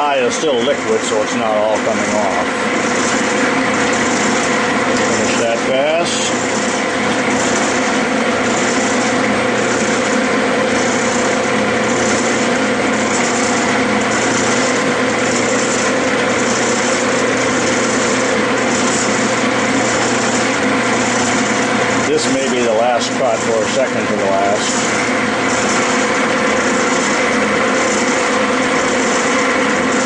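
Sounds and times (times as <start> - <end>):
high whine pulsing: 0.0 - 30.0
metal lathe running: 0.0 - 30.0.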